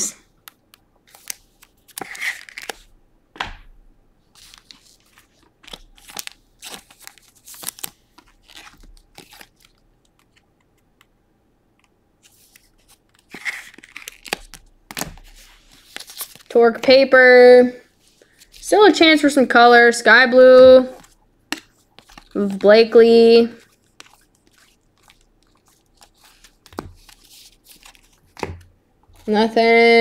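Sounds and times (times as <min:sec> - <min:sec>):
cards sliding and rustling: 0:00.5 - 0:02.9, 0:04.4 - 0:11.1, 0:12.2 - 0:16.5, 0:20.9 - 0:29.4.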